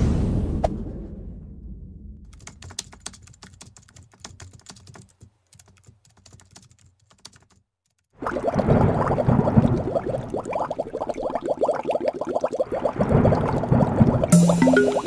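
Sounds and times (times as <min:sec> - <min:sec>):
rapid keyboard-like clicking: 0:02.3 - 0:08.1.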